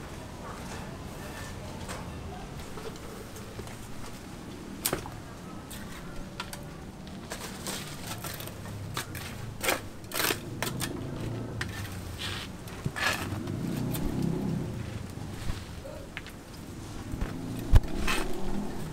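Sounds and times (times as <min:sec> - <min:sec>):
hand tools tapping and scraping brick: 0:05.7 - 0:14.2.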